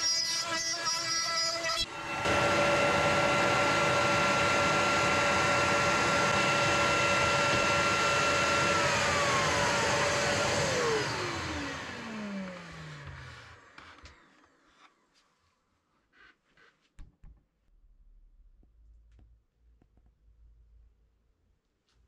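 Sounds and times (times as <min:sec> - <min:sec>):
router motor whining: 0:00.0 - 0:14.7.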